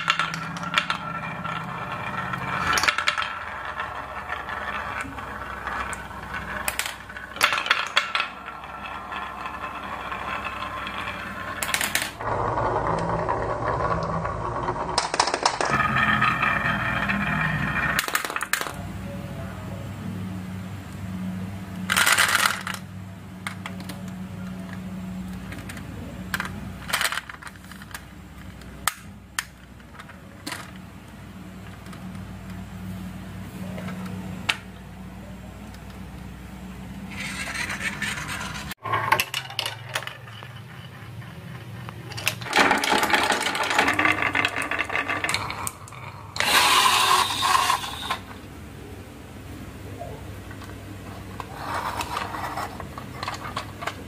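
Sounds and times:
marbles rattling down a marble run: 0:00.0 - 0:18.8, 0:37.1 - 0:48.3.

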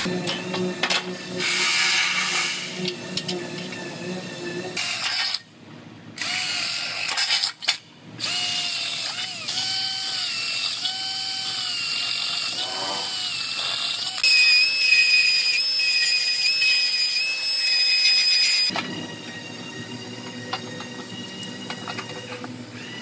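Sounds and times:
belt sander whine: 0:00.0 - 0:05.1, 0:08.3 - 0:23.0
cordless drill boring into steel: 0:08.2 - 0:18.7.

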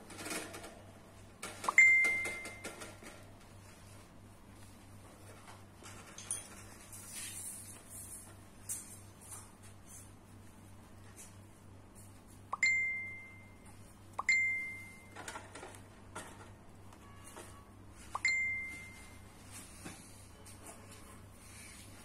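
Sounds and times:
bell-like dings: 0:01.8 - 0:02.6, 0:12.6 - 0:13.6, 0:14.2 - 0:15.1.

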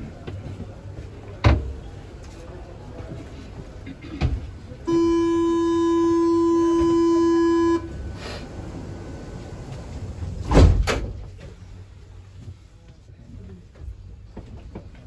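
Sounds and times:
door warning buzzer: 0:04.9 - 0:08.0.

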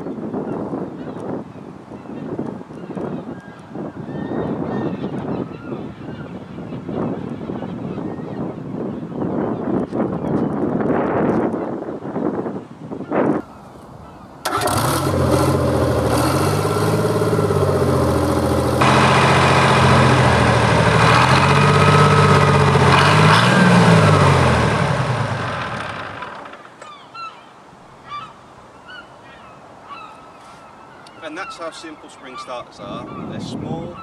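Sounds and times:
diesel engine starting and running: 0:14.4 - 0:26.7.

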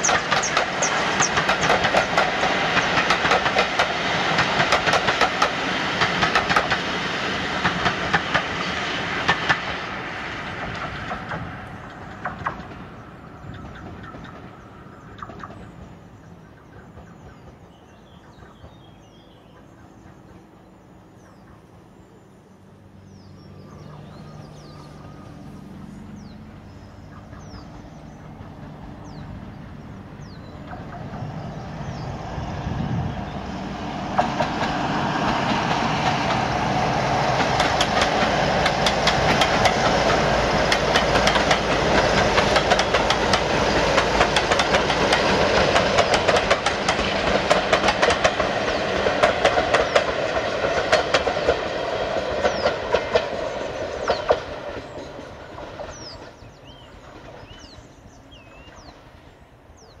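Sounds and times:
birds chirping: 0:00.0 - 0:06.9, 0:07.5 - 1:00.0
wheels clicking over rail joints: 0:00.0 - 0:16.0, 0:34.1 - 0:57.6
diesel locomotive engine drone: 0:00.0 - 1:00.0.

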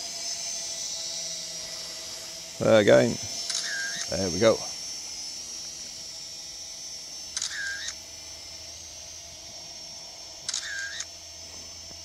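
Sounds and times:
drone motors whining: 0:00.0 - 0:12.0
camera shutter sound: 0:03.4 - 0:04.1, 0:07.3 - 0:08.0, 0:10.5 - 0:11.1.

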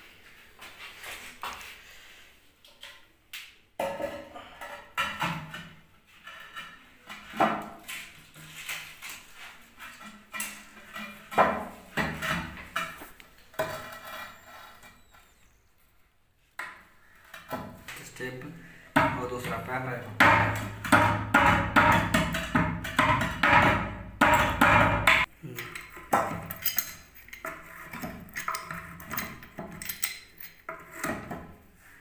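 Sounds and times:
tools tapping on ceramic: 0:18.9 - 0:31.5.

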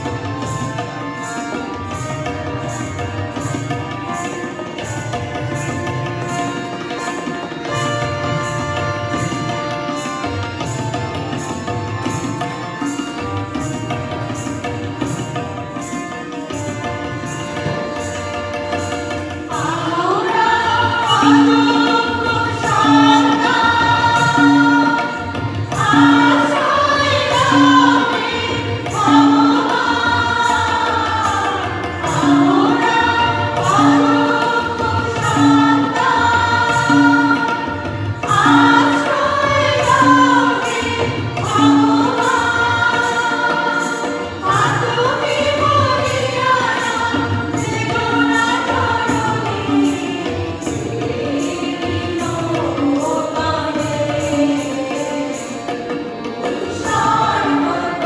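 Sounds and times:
instrumental accompaniment: 0:00.0 - 0:58.0
group of voices singing: 0:19.5 - 0:58.0.

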